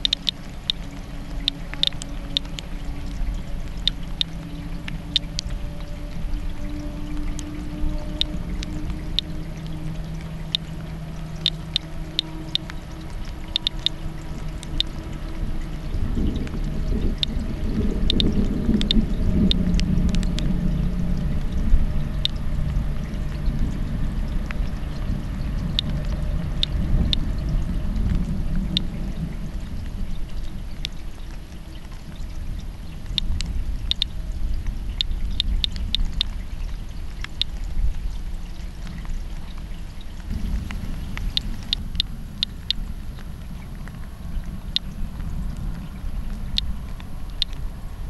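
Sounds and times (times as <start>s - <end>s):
geiger counter clicking: 0.0s - 5.6s, 8.1s - 15.0s, 16.4s - 17.4s, 18.0s - 20.5s, 33.1s - 34.1s, 35.0s - 36.3s, 40.7s - 42.8s, 47.3s - 47.6s
low steady rumble: 0.0s - 48.0s.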